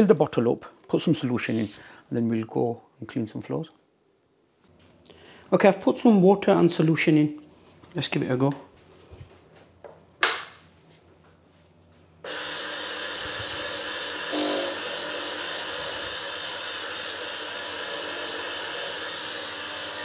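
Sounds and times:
spin mop motor whirring: 12.2 - 20.0.

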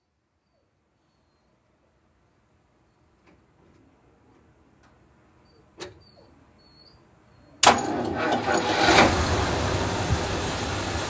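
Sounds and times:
car engine starting and running: 7.6 - 11.0.

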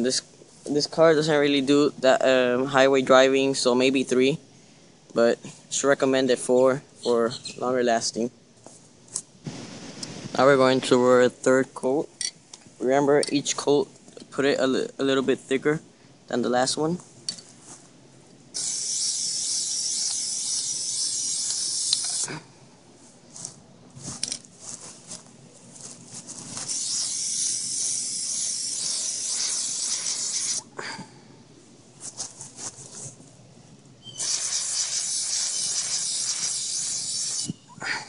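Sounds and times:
aerosol can spraying: 18.6 - 22.3, 26.6 - 30.6, 34.2 - 37.6.

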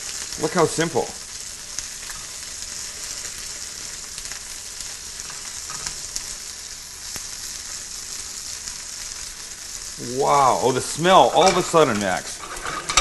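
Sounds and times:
food sizzling in oil: 0.0 - 13.0
spatula scraping a pan: 11.4 - 13.0.

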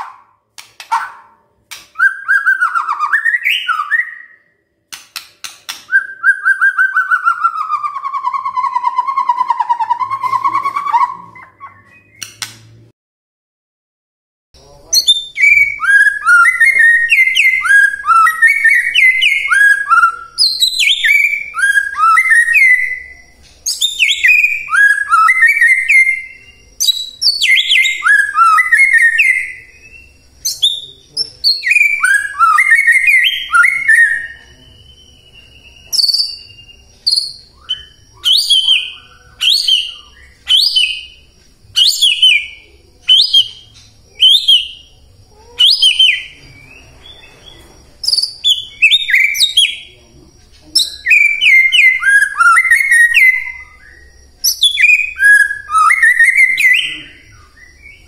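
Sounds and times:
bird singing ringing whistles: 1.9 - 4.7, 5.7 - 12.4, 14.9 - 58.0
sharp downward-slurred bird notes: 14.6 - 58.0.

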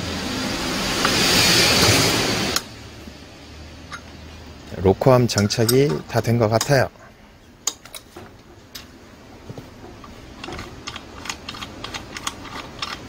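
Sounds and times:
hand tools clicking on metal: 5.3 - 6.8, 9.8 - 13.0.

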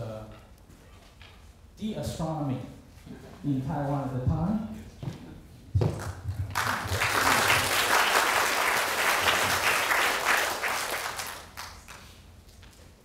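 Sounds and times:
audience applauding: 6.0 - 12.1.

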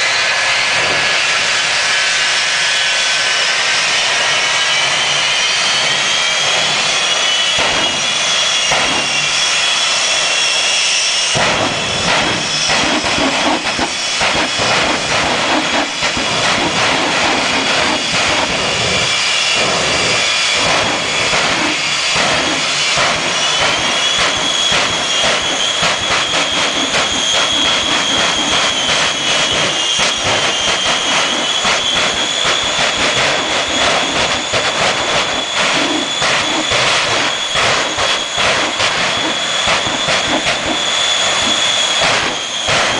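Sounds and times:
jet engines whining: 0.0 - 42.9
crackling exhaust rumble: 4.0 - 10.4, 11.3 - 42.9.

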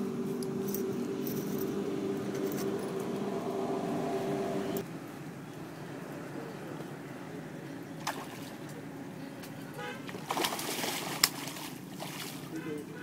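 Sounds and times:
mechanical motor hum: 0.0 - 4.8.

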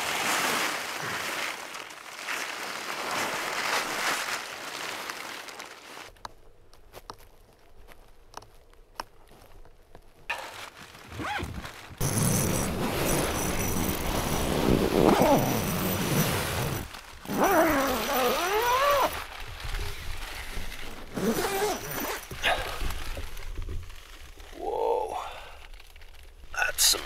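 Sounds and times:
nylon fabric rustling: 0.0 - 6.2, 10.3 - 24.7
tent zipper pulled open: 10.3 - 24.2
person's voice: 24.5 - 25.5, 26.6 - 27.0.

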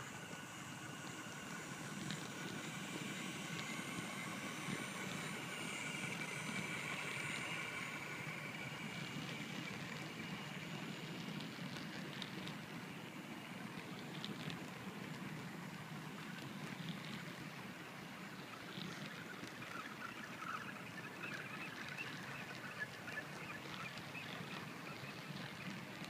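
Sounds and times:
model train wheels rumbling on track: 0.0 - 19.8
model locomotive motors whining: 0.0 - 26.0.

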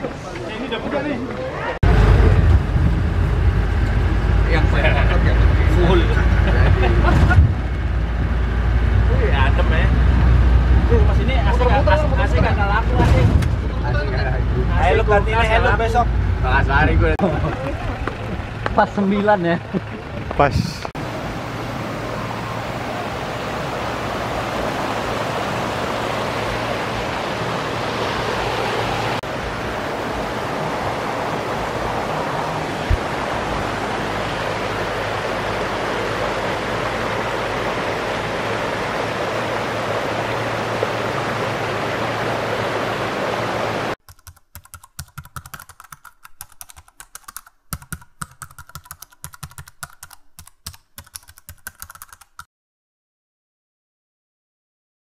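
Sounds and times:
river rushing: 21.0 - 44.0
keyboard typing clicks: 44.0 - 52.5.

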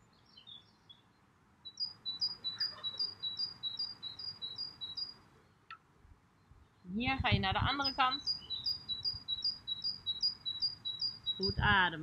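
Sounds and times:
soft bird chirps: 0.0 - 11.9
songbird singing two-note phrases: 1.7 - 5.2, 7.6 - 11.8.

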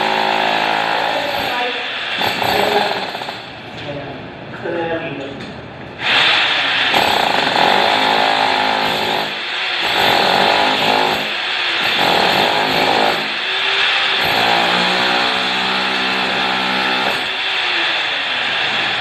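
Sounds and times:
demolition hammer chiselling tiles: 0.0 - 3.6, 6.0 - 19.0.

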